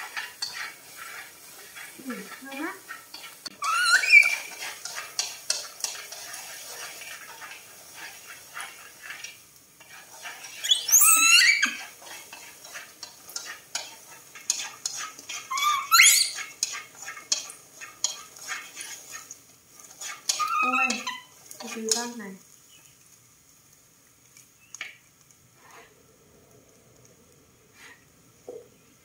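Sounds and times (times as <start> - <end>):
utensil scraping corn in wok: 0.0 - 26.0, 27.7 - 28.1
baby monkey squealing: 3.5 - 4.5, 10.5 - 11.8, 15.5 - 16.5, 20.3 - 21.3.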